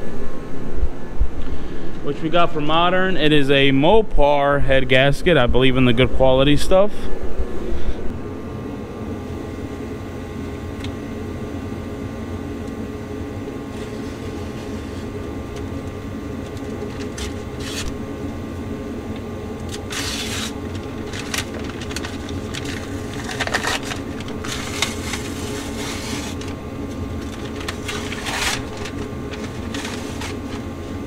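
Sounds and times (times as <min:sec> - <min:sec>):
steady machine hum: 0:00.0 - 0:31.0
paper wrapper crinkling and tearing: 0:16.4 - 0:18.0, 0:19.6 - 0:30.7.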